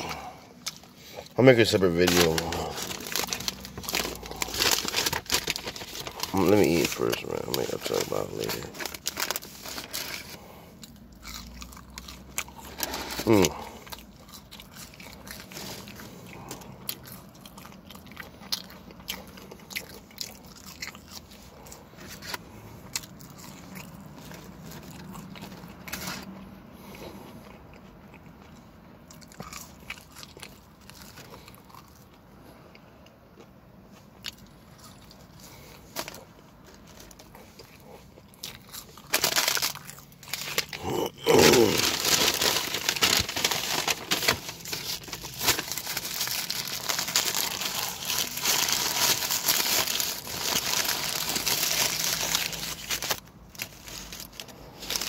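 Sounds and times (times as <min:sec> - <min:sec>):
paper wrapper crinkling: 0:00.7 - 0:10.4, 0:12.6 - 0:13.7, 0:38.9 - 0:55.0
loud rub on wrapper: 0:01.6 - 0:10.4, 0:39.1 - 0:55.0.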